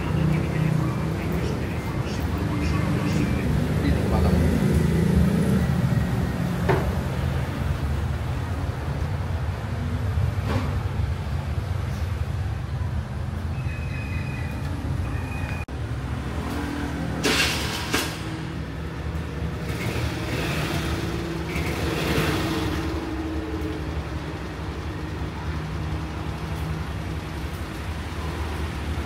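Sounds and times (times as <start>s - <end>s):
vehicle passing: 0.0s - 8.8s
road traffic: 0.0s - 29.0s.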